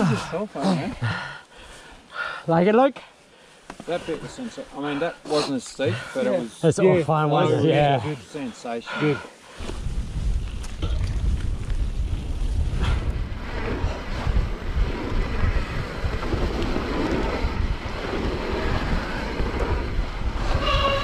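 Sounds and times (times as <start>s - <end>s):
bike tyres rumbling and rattling: 9.5s - 21.0s
wind buffeting microphone: 9.6s - 21.0s.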